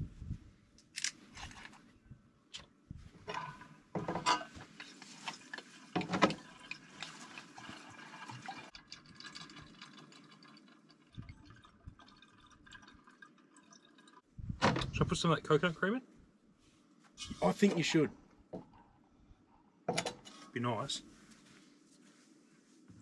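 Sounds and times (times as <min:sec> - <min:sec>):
drink pouring into keg: 0:05.3 - 0:14.3.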